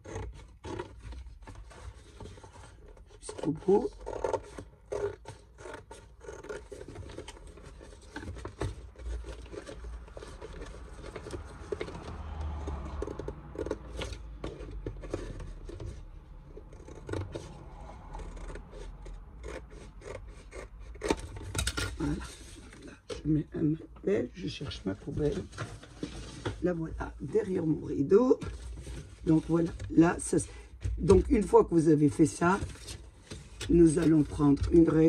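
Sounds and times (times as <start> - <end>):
scissors cutting cardboard: 0.0 - 22.9.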